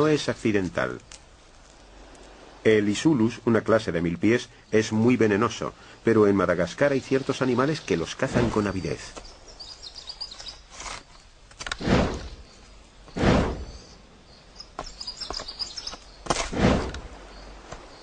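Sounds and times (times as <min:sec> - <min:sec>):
faint high bird chirps: 0:08.6 - 0:11.2, 0:12.2 - 0:16.2
short swishing rustle: 0:10.6 - 0:13.9, 0:16.2 - 0:17.7.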